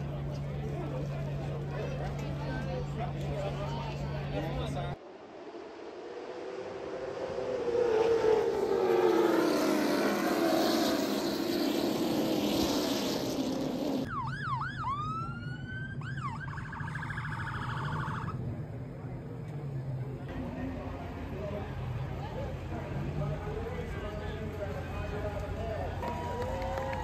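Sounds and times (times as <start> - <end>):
race cars roaring past: 0.0 - 27.0
emergency vehicle siren: 14.1 - 18.5.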